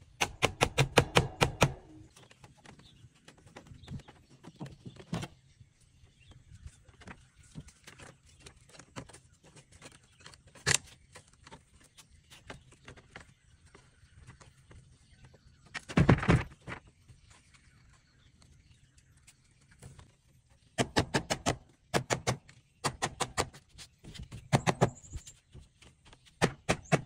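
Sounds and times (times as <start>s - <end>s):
hatchet knocking on bamboo: 0.2s - 1.8s.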